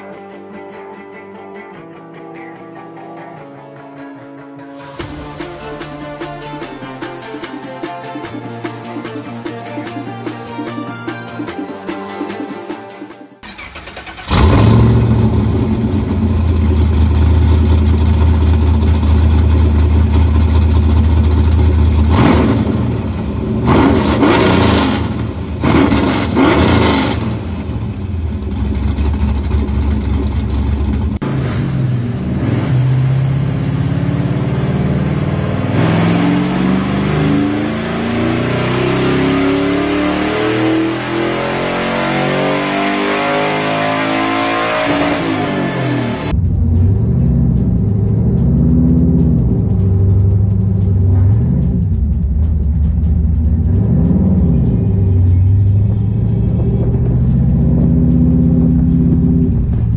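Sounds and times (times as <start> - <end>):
car engine idling: 13.4 - 38.7, 46.0 - 59.9
engine pulling at full throttle: 13.4 - 59.9
engine revving: 13.4 - 59.9.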